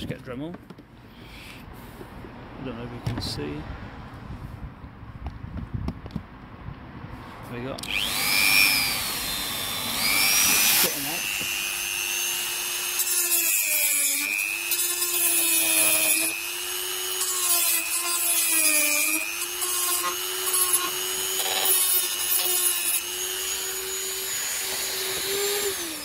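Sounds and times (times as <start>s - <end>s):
rotary tool whining: 7.8s - 26.0s.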